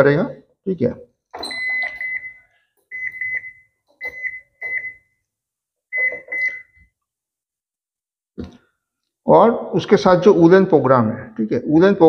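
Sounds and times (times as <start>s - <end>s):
washing machine beeps: 1.4s - 5.3s, 5.9s - 7.0s.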